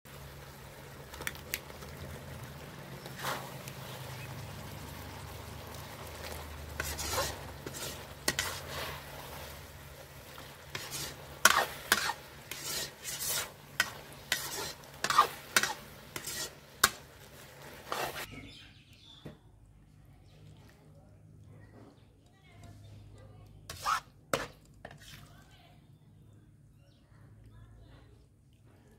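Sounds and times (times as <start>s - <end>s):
food sizzling: 0.1s - 18.3s
ladle scraping iron pan: 6.2s - 18.3s, 23.7s - 25.2s.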